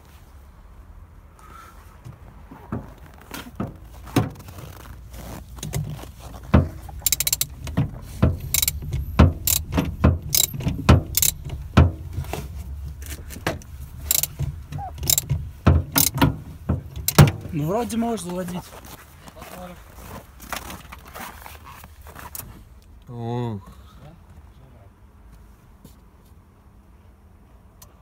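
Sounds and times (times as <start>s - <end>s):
socket wrench clicking: 7.0s - 11.6s, 14.0s - 16.3s, 16.9s - 17.4s.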